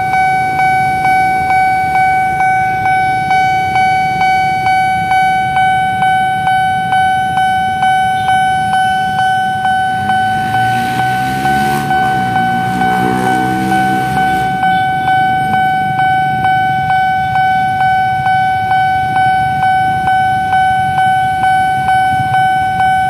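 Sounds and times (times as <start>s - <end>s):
crossing alarm bell dinging: 0.0s - 23.0s
low hum rising and falling: 9.2s - 17.1s.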